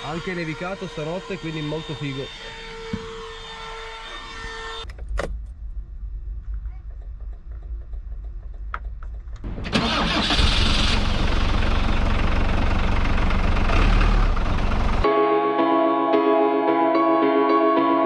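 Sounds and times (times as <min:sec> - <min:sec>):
van engine starting and running: 0:04.9 - 0:15.1
music: 0:15.0 - 0:18.0.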